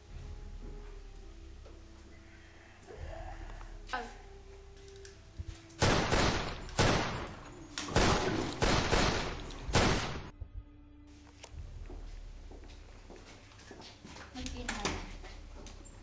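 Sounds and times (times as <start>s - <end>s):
gunshots: 5.8s - 10.3s.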